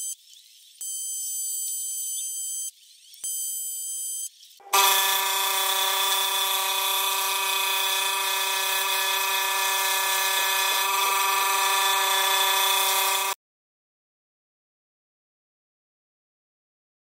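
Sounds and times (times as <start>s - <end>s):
saw cutting wood hiss: 4.6s - 13.4s
scroll saw hum: 4.6s - 13.4s.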